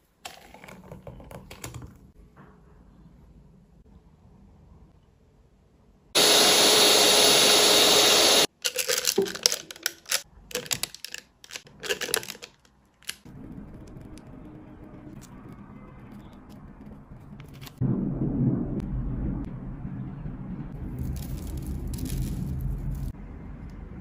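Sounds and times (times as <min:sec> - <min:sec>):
electric whisk motor whine: 0:06.2 - 0:08.5
plastic bag crinkling: 0:08.5 - 0:14.2, 0:21.0 - 0:23.1.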